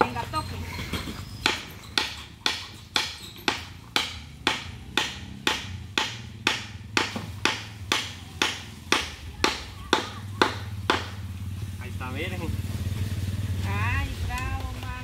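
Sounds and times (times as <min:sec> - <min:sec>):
hammer striking wooden pole: 0:01.4 - 0:11.2.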